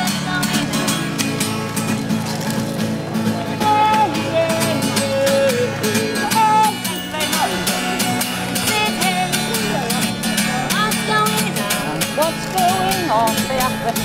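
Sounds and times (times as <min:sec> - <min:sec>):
acoustic guitar strumming: 0:00.0 - 0:14.0
woman singing: 0:03.6 - 0:09.9, 0:10.5 - 0:14.0.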